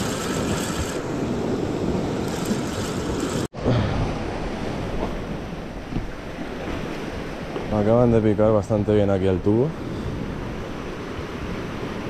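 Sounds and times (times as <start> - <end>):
sea surf washing in: 0.0 - 7.8.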